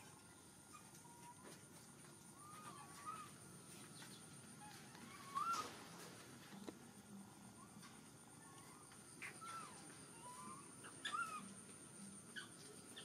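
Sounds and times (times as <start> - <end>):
faint outdoor background noise: 0.0 - 13.0
wavy whistled animal calls: 5.0 - 5.9.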